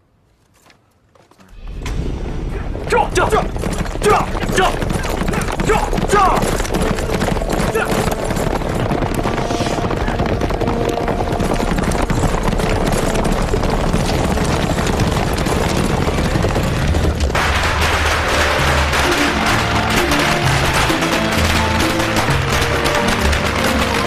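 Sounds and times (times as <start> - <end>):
clatter of fighting: 1.3 - 24.0
firecrackers crackling: 1.5 - 24.0
men shouting: 2.9 - 6.6.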